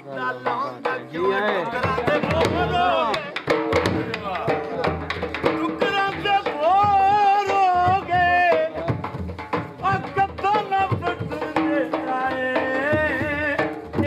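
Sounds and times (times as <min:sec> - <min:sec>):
dhol drum beating: 0:00.0 - 0:14.0.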